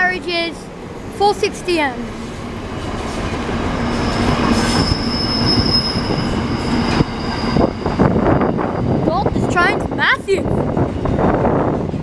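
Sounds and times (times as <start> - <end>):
high-pitched wheel squeal: 3.7 - 9.0.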